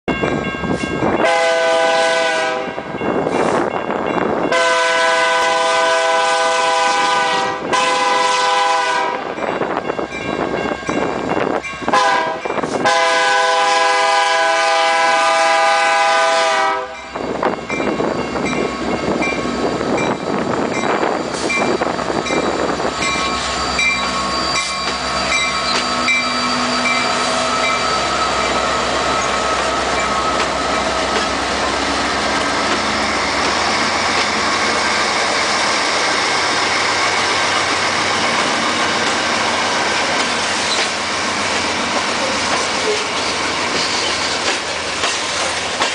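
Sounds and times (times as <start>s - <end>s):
crossing bell dinging: 0.1s - 5.4s, 9.1s - 13.2s, 16.7s - 40.9s
train horn blast: 1.2s - 2.9s, 4.5s - 9.3s, 11.9s - 17.0s
locomotive engines running: 17.2s - 45.9s
train wheels clattering over rails: 26.8s - 45.9s.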